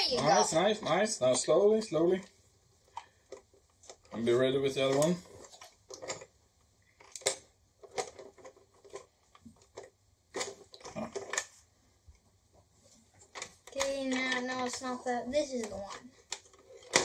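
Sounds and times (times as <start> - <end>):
plastic toy clicking and rattling: 2.9 - 6.3, 7.0 - 11.6, 13.2 - 17.0.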